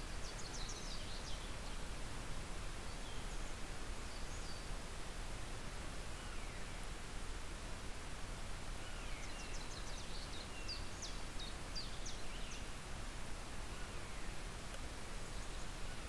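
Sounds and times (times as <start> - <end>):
songbirds calling: 0.0 - 2.0, 2.7 - 4.8, 6.0 - 7.0, 8.7 - 12.8, 13.5 - 16.0
steady background hiss: 0.0 - 16.0.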